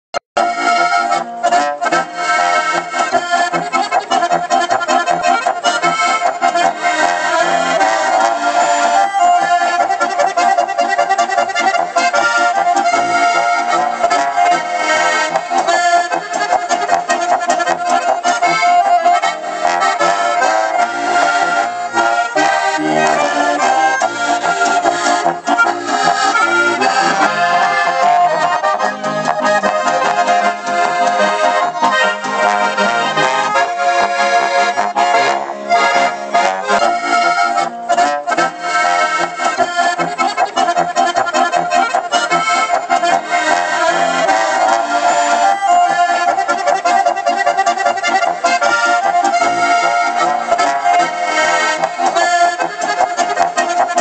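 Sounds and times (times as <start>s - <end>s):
accordions playing folk tune: 0.4s - 54.0s.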